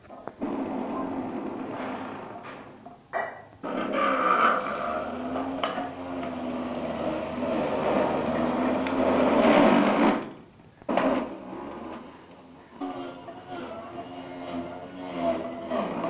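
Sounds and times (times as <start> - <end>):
juicer motor grinding carrots: 4.2 - 10.2, 12.8 - 16.0.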